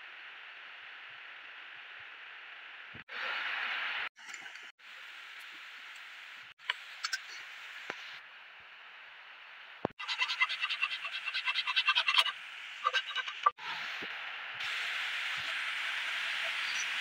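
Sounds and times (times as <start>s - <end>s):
faint hiss: 13.6s - 17.0s.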